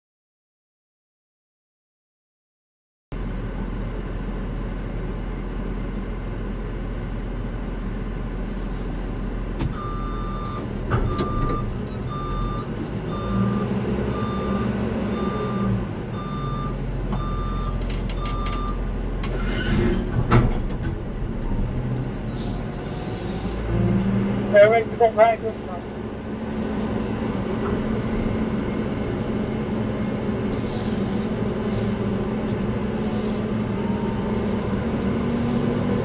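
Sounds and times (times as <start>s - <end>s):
low engine rumble: 3.1s - 36.0s
vehicle reversing alarm beeping: 9.7s - 18.8s, 33.2s - 34.7s.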